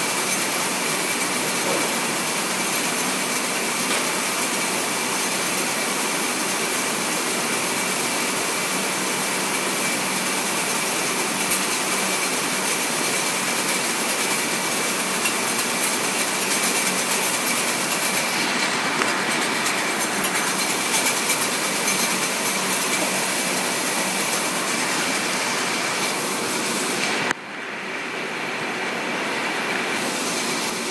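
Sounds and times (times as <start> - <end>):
conveyor rattling and humming: 0.0 - 30.9.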